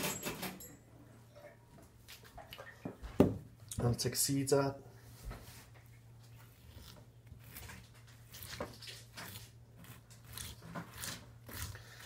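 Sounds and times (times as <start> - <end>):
wet scraping of cucumber seeds: 6.3 - 12.0.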